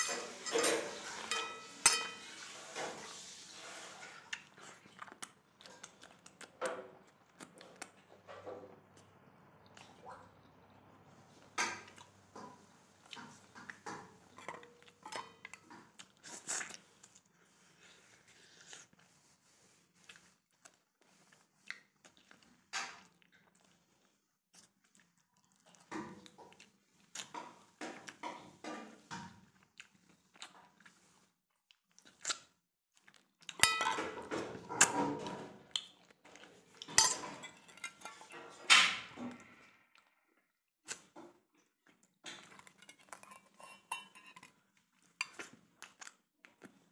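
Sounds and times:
man chewing and lip-smacking: 4.2s - 8.2s, 19.9s - 28.3s, 29.4s - 33.6s, 35.7s - 36.9s, 44.8s - 46.9s.

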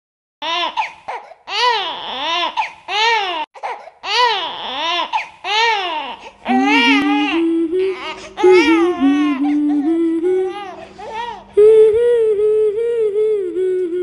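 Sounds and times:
infant crying: 0.4s - 7.4s, 8.0s - 9.8s, 10.5s - 11.5s.

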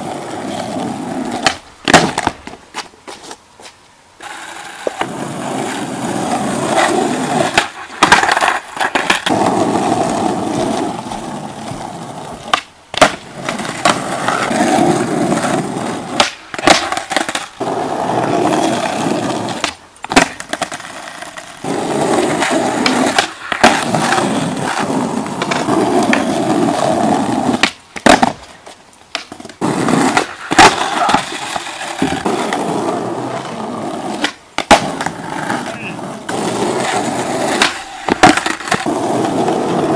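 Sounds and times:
skateboard wheels on asphalt: 0.0s - 39.9s
skateboard tail pops: 1.2s - 5.2s, 6.7s - 17.8s, 19.2s - 39.9s
boards clattering on ground: 1.4s - 3.8s, 7.5s - 9.4s, 16.2s - 17.5s, 19.6s - 20.8s, 27.6s - 31.4s, 37.6s - 38.9s.

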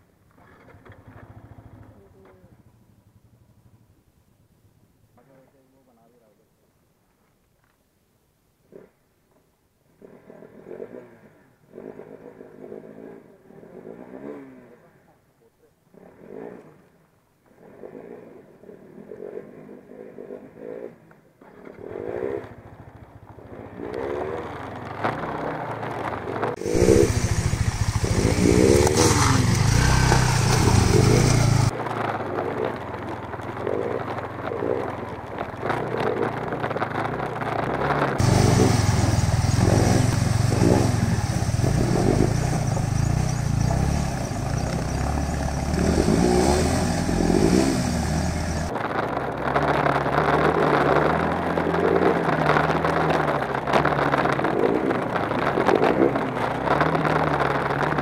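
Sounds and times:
motorcycle engines running: 0.4s - 4.1s, 21.6s - 58.0s.

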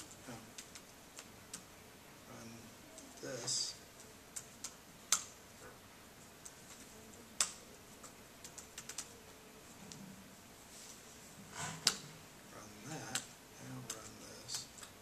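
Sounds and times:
laptop keystrokes: 7.4s - 9.1s.

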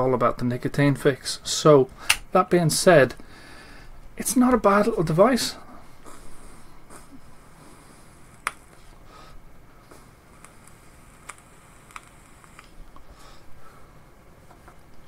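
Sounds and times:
faint airflow of inhaling: 3.2s - 4.0s, 5.6s - 10.2s, 13.0s - 14.0s
small vape clicks: 10.4s - 13.0s.

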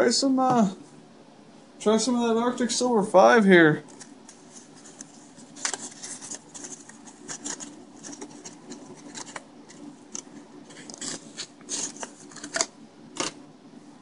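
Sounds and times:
plastic blister pack crinkling: 3.9s - 13.4s.

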